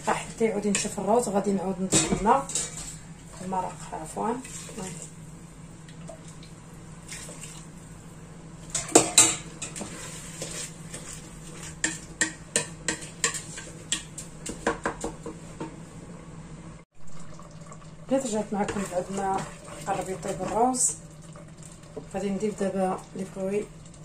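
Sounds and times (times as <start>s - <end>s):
metal ladle clanking on pot: 1.9s - 2.9s, 8.7s - 9.8s
wooden spoon stirring rice in pot: 9.6s - 15.4s, 18.6s - 21.0s.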